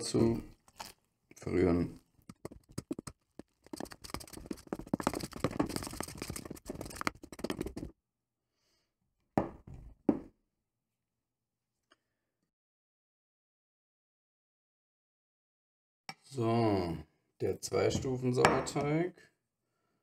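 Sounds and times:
spoon scraping metal bowl: 2.3s - 7.9s.

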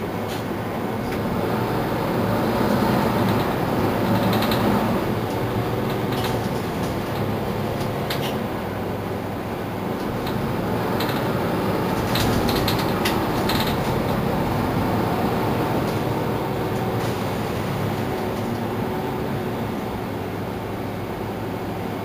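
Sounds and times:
bus engine drone: 0.0s - 22.0s
road rumble: 0.0s - 22.0s
clicks and rattles: 11.9s - 14.2s.

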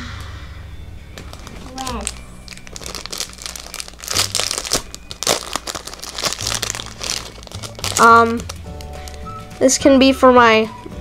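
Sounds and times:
plastic bag crinkling: 1.2s - 9.4s.

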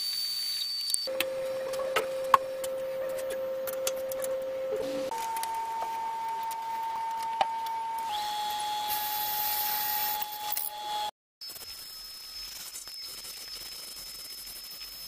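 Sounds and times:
wood lathe motor whine: 4.4s - 11.1s.

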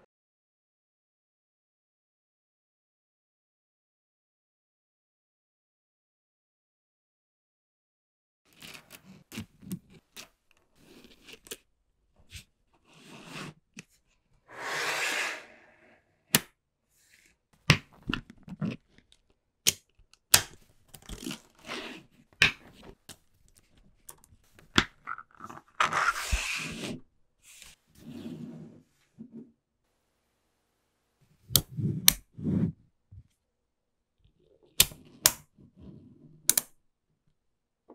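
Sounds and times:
balls rattling and scraping: 20.6s - 27.0s.

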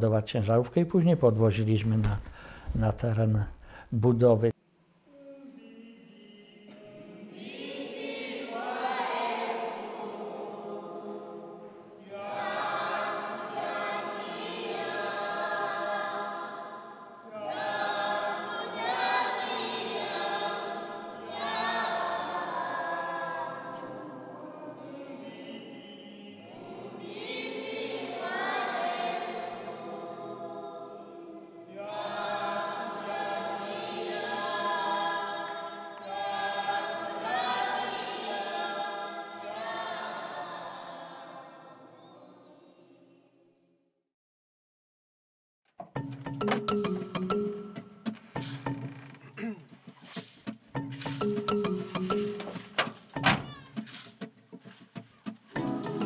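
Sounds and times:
choir and congregation singing hymn: 5.1s - 42.6s, 55.5s - 56.0s.

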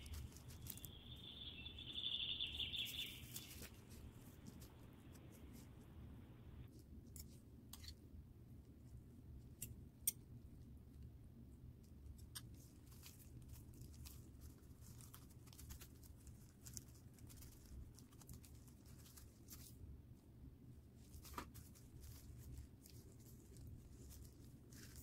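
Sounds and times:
plastic gloves crinkling: 0.0s - 5.8s, 12.6s - 19.9s, 20.9s - 25.0s
low steady hum: 0.0s - 25.0s.

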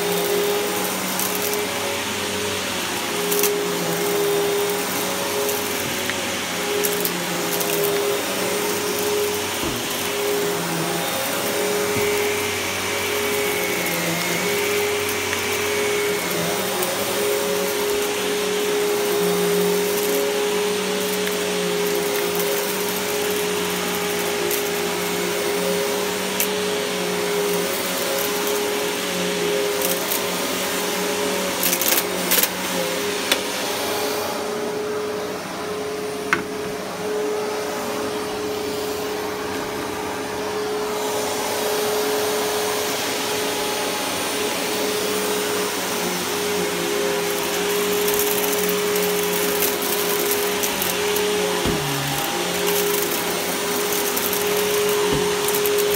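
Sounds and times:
vacuum cleaner running: 0.0s - 55.9s.

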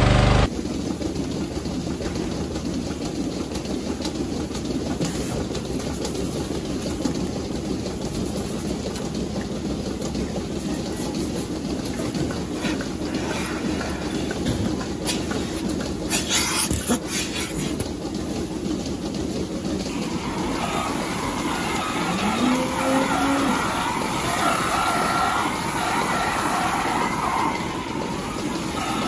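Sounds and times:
milking equipment running: 0.0s - 29.0s.

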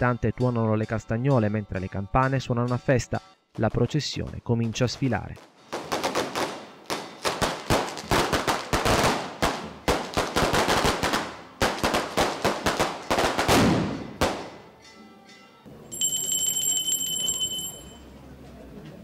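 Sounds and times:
firecrackers exploding: 5.7s - 14.6s.

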